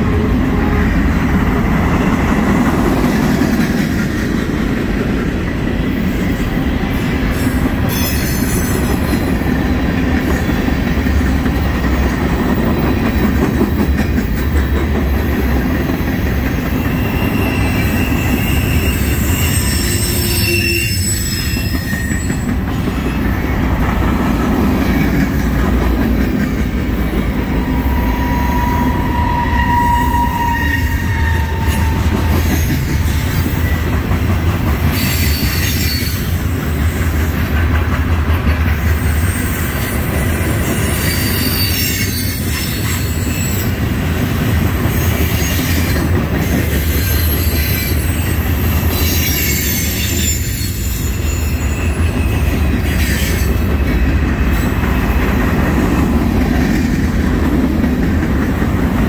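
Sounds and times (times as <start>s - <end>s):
train wheels rumbling on rail: 0.0s - 59.0s
high wheel squeals: 16.7s - 23.7s, 27.5s - 33.8s, 40.6s - 43.8s, 47.0s - 53.6s.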